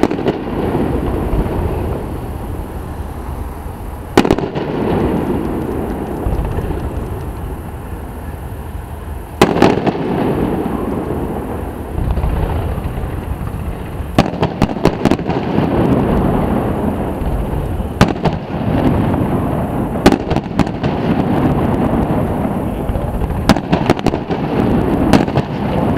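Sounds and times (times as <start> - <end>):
firework cracks: 0.0 - 25.9
fireworks bangs: 0.0 - 25.9
low rumble: 5.0 - 9.4.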